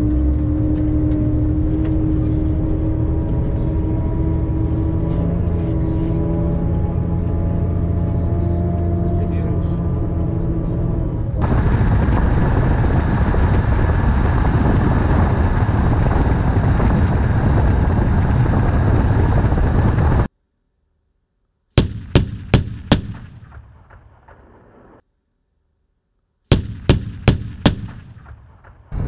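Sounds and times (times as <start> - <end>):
heavy vehicle engine running: 0.0 - 20.3, 26.7 - 29.0
sharp gunshots with echo: 21.8 - 25.0, 26.5 - 29.0.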